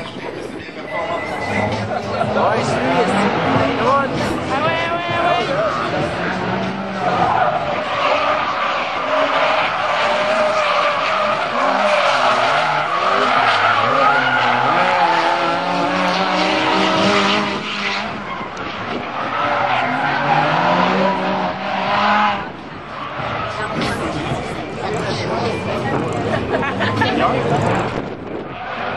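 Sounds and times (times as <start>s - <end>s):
car engines revving: 0.0s - 28.9s
tyres squealing and skidding: 0.4s - 26.2s, 26.8s - 28.9s.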